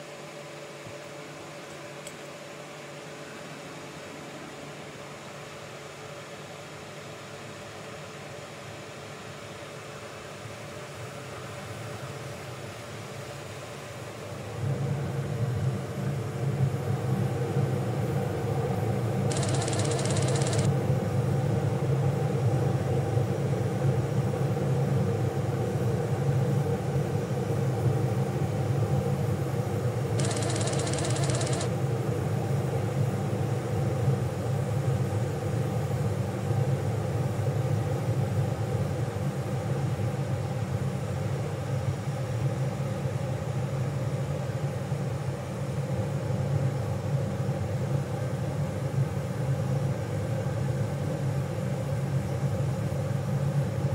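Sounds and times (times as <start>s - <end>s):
low machine hum: 14.0s - 38.2s.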